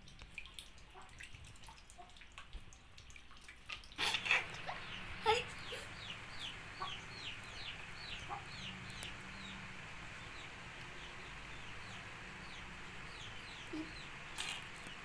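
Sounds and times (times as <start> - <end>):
small bird peeping: 4.2 - 15.0.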